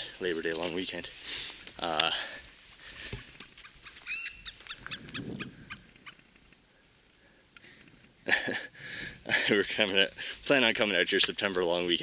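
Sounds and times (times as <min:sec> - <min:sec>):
high-pitched animal call: 0:04.0 - 0:06.2.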